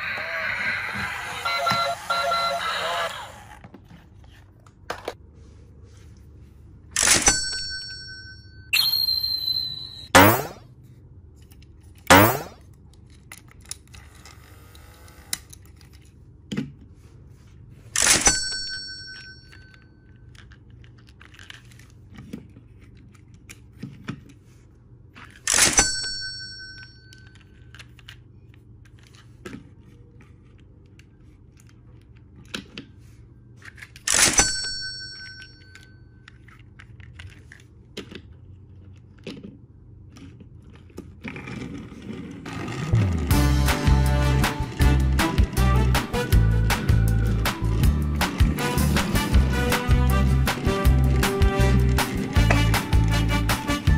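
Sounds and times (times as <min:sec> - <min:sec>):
metallic ring: 0:07.0 - 0:10.6.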